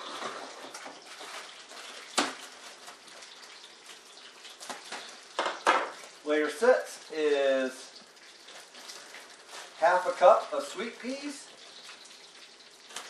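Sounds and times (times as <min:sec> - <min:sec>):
bacon frying in a pan: 0:00.0 - 0:13.0.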